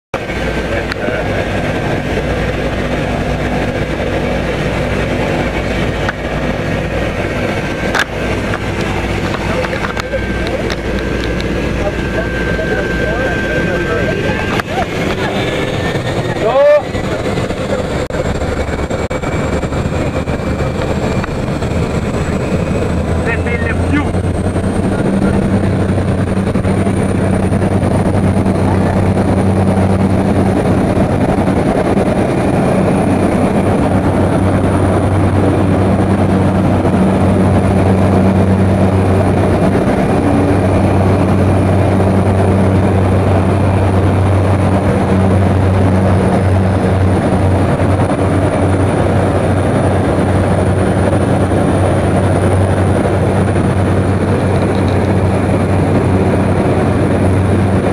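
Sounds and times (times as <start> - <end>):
propeller plane engine drone: 0.1 - 57.9.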